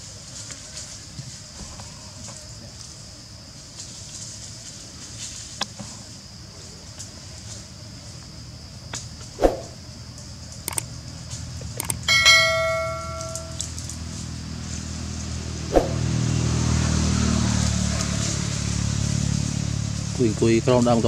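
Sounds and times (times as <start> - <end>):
clicks: 10.7 - 10.9, 11.8 - 13.7
bell ding: 11.8 - 13.6.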